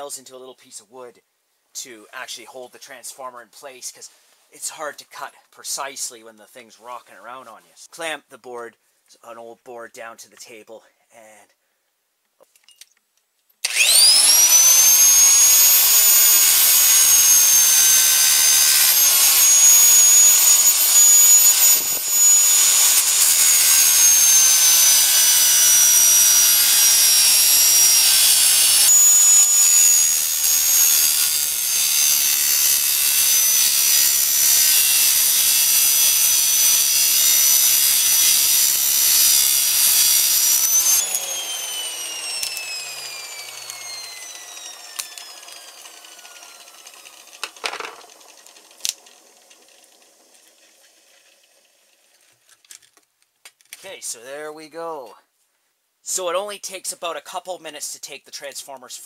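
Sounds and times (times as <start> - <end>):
angle grinder cutting steel: 13.6 - 51.4.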